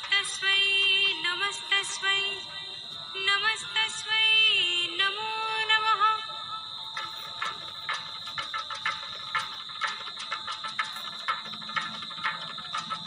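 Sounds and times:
steady high ringing tone: 0:00.0 - 0:13.0.

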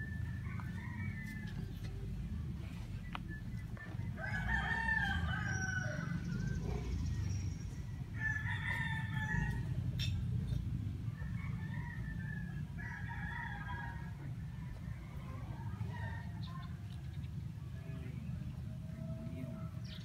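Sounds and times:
rooster crowing: 0:00.0 - 0:01.8, 0:04.1 - 0:06.6, 0:08.2 - 0:09.8.

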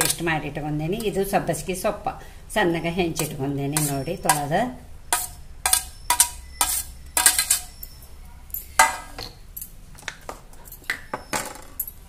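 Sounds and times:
spoon clinking on steel plate: 0:03.2 - 0:04.5, 0:05.1 - 0:07.8.

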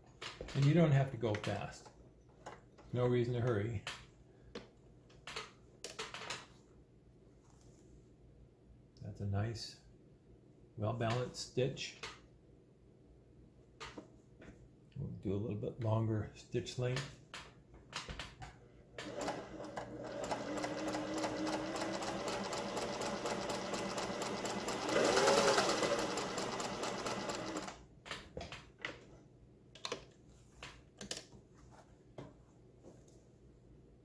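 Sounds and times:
sewing machine stitching: 0:19.0 - 0:27.8.

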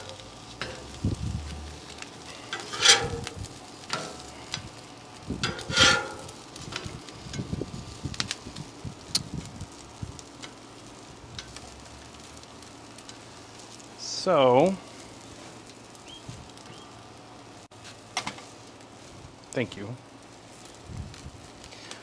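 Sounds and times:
metal spatula scraping griddle: 0:00.0 - 0:04.8, 0:05.4 - 0:06.9
tortillas sizzling on griddle: 0:00.0 - 0:22.0.

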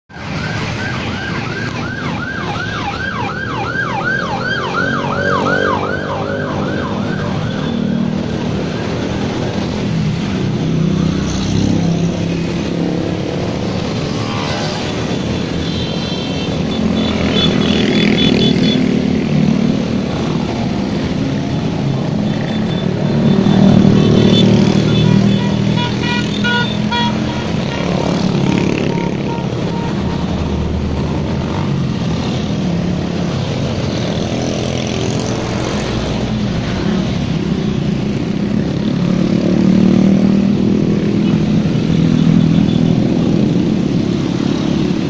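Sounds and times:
motorcycle engines passing: 0:00.1 - 0:45.0
siren in fast yelp: 0:00.2 - 0:08.0.

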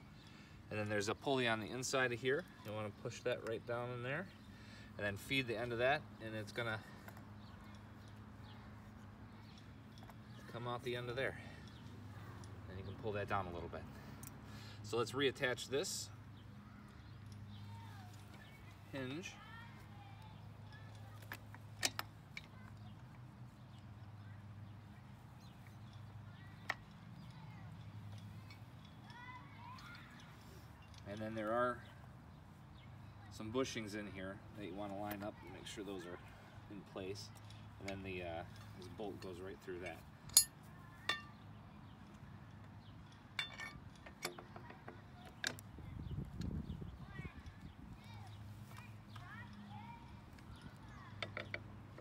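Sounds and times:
metal hinge parts clicking: 0:20.2 - 0:24.2, 0:37.3 - 0:41.4, 0:42.1 - 0:45.7, 0:50.3 - 0:52.0.

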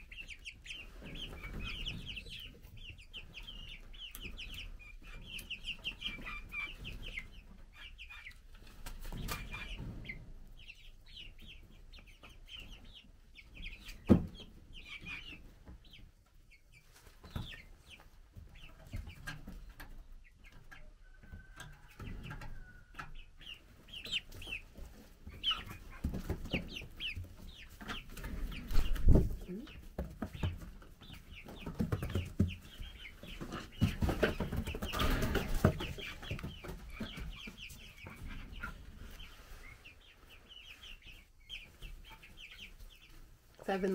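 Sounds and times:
chicks peeping: 0:00.0 - 0:43.9.

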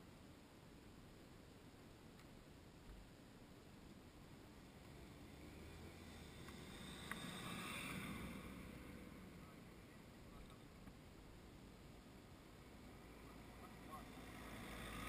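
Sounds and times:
car driving past: 0:04.9 - 0:10.1, 0:12.9 - 0:15.0.

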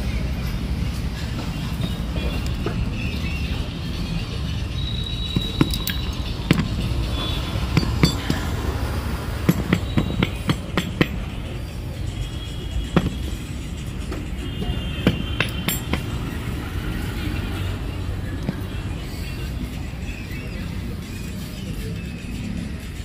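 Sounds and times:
metal parts clinking on concrete: 0:05.1 - 0:08.6, 0:15.0 - 0:16.1.

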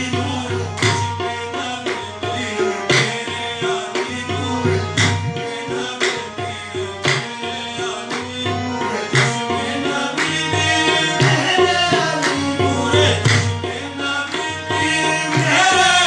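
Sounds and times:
hand-drum rhythm: 0:00.0 - 0:16.0
harmonium playing chords: 0:00.0 - 0:16.0
sharp hand claps: 0:07.0 - 0:07.4, 0:09.1 - 0:09.5, 0:12.2 - 0:12.4.

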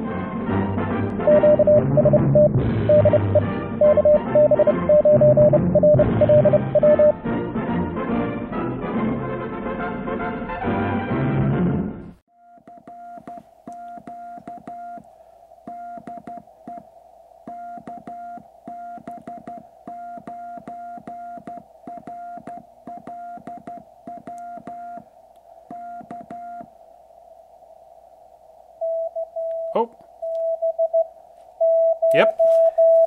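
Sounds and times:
morse code tone: 0:01.3 - 0:07.2, 0:12.4 - 0:15.0, 0:15.7 - 0:16.8, 0:17.5 - 0:25.0, 0:28.8 - 0:33.0.

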